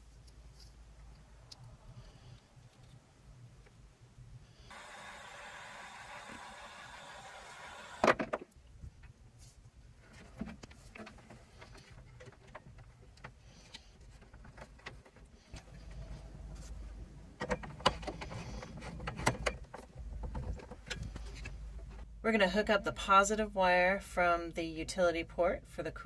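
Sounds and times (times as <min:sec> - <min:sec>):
heat tool hissing: 0:04.7 - 0:08.1.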